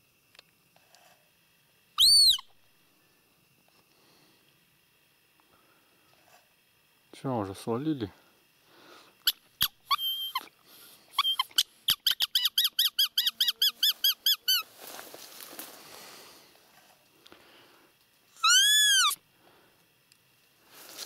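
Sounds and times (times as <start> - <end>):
deer call squeaker squeaks: 2.0 - 2.5, 9.3 - 10.5, 11.2 - 14.7, 18.4 - 19.2.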